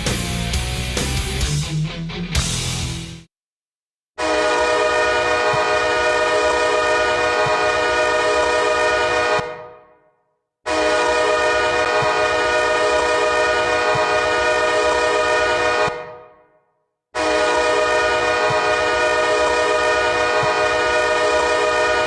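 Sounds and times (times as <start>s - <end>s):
hockey goal horn blasts: 4.2s - 9.9s, 10.7s - 16.3s, 17.2s - 22.0s.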